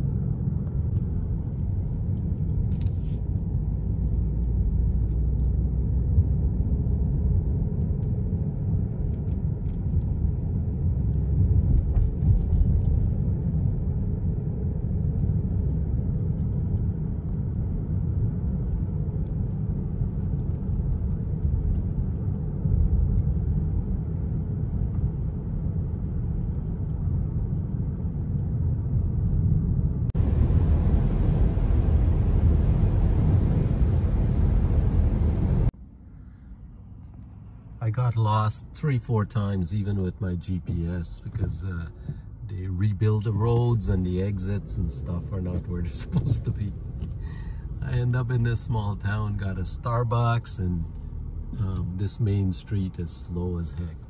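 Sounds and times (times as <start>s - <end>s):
road and engine rumble in car: 0.0s - 54.0s
tyres hissing on wet road: 30.2s - 35.7s.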